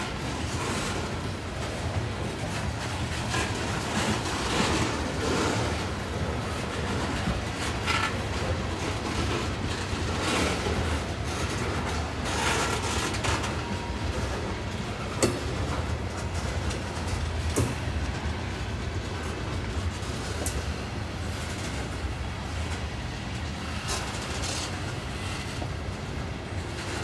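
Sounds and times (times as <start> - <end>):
train wheels rumbling on rail: 0.0 - 27.0
sharp clicks and clanks: 15.1 - 18.4.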